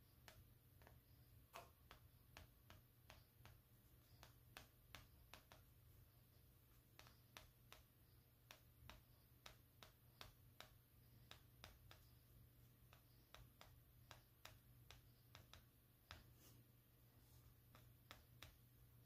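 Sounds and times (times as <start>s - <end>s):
pastel stick tapping on paper: 0.1s - 16.6s, 17.6s - 19.0s.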